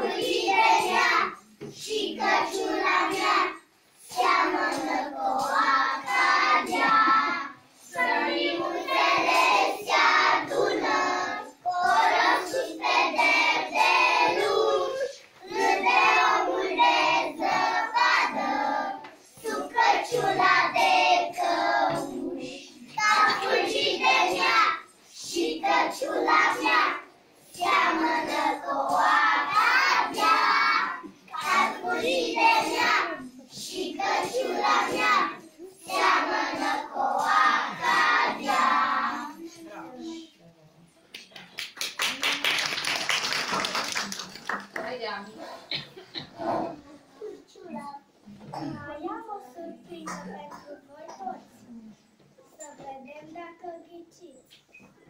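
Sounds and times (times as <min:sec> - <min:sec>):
children singing together: 0:00.0 - 0:39.5.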